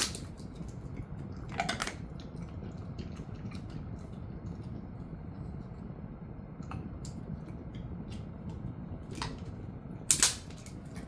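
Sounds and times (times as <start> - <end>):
dog chewing bone: 0.2 - 4.8.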